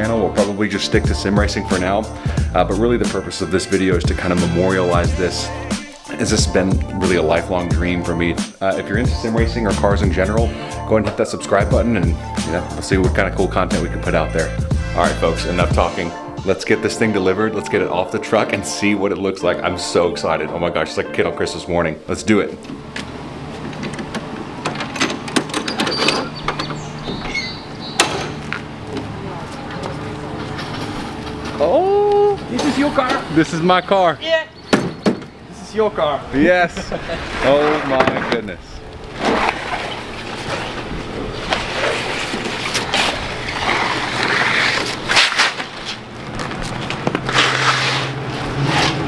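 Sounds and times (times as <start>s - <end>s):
metal latches clicking and clanking: 23.6s - 28.6s
carpet scraping on wooden ramp: 39.2s - 49.0s.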